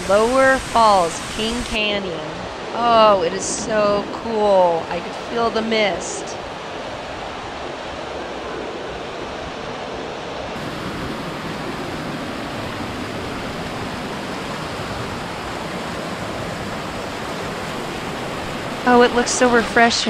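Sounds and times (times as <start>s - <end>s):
waterfall splashing over rocks: 0.0s - 2.7s, 10.6s - 19.7s.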